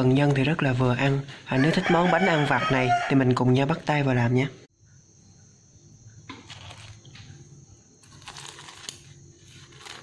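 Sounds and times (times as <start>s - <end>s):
scissors crunching crisp crust: 8.0s - 10.0s.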